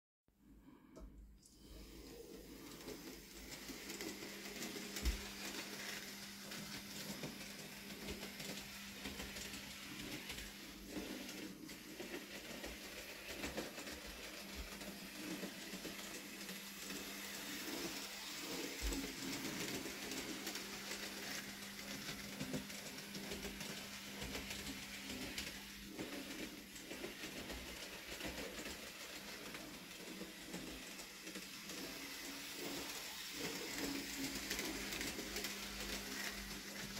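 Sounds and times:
small electric motor hum: 1.6s - 36.9s.

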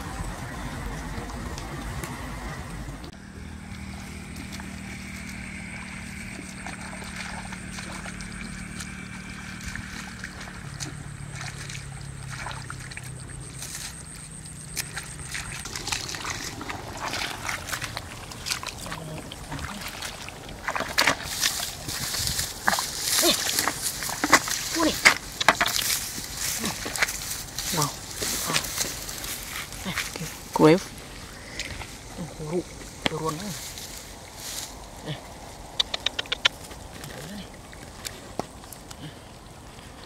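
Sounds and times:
low hum with high tone: 0.0s - 20.3s
mud and water sloshing: 0.0s - 40.0s.

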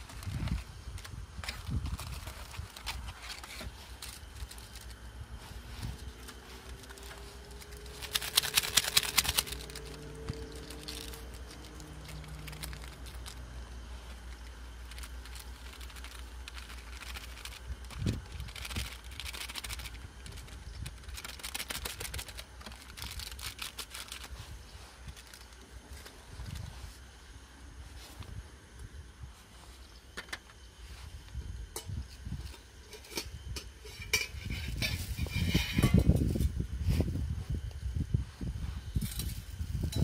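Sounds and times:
plastic wrapping crinkling: 0.0s - 27.0s
steady low rumble: 0.0s - 40.0s.

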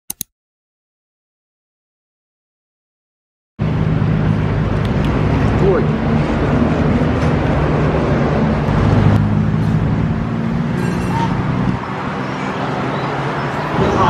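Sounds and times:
road noise: 3.6s - 14.0s
vehicle engine humming: 3.6s - 14.0s.

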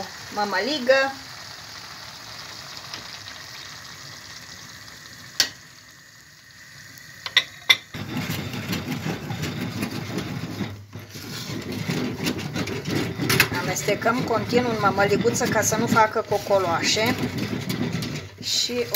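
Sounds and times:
wooden spoon stirring polenta: 7.9s - 18.9s.

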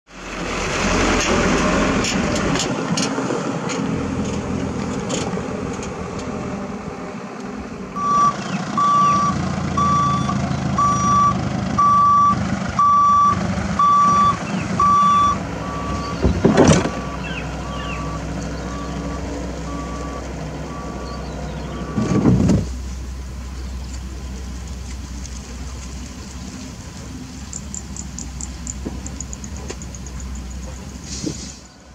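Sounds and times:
heavy engine running: 0.1s - 31.9s
reversing alarm beeping: 8.0s - 21.2s.

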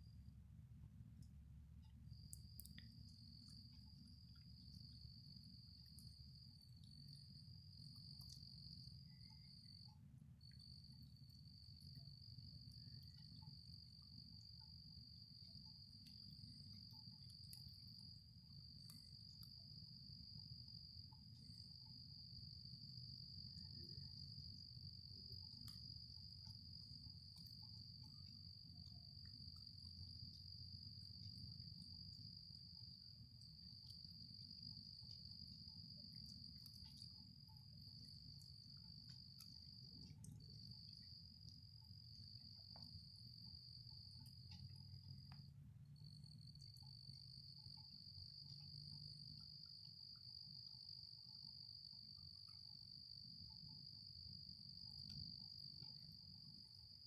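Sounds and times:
low steady rumble: 0.0s - 52.7s
insect trilling: 2.1s - 45.4s.

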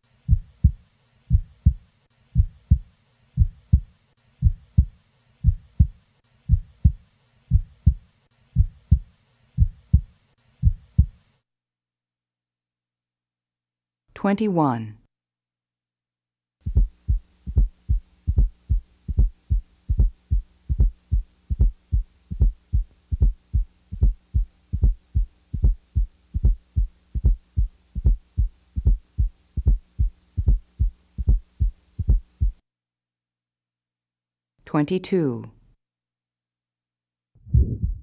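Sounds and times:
faint steady hum: 0.0s - 11.4s, 16.6s - 32.6s
heartbeat thuds: 0.3s - 1.8s, 2.4s - 11.2s, 16.6s - 32.6s, 37.4s - 38.0s.

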